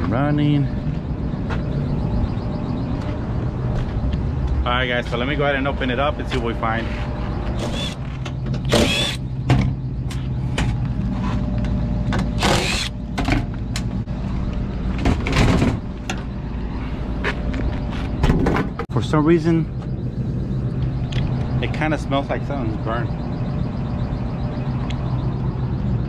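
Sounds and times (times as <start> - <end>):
low machinery hum: 0.0 - 26.0
impact driver whirring: 7.6 - 8.0, 8.7 - 9.2, 12.4 - 12.9.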